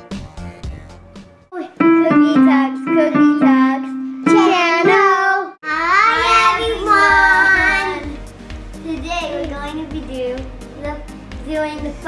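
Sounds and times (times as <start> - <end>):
digital piano accompaniment: 1.6 - 5.3
child singing: 2.1 - 8.2.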